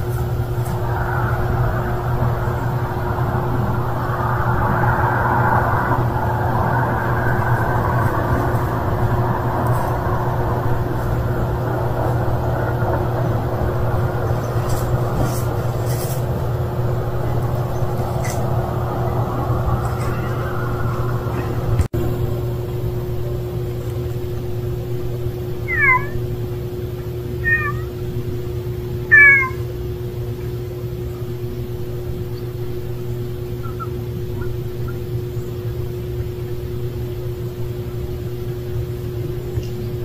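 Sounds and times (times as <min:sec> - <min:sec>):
low mechanical hum: 0:00.0 - 0:40.0
cat meowing: 0:25.7 - 0:26.2, 0:27.4 - 0:28.0, 0:29.1 - 0:29.7.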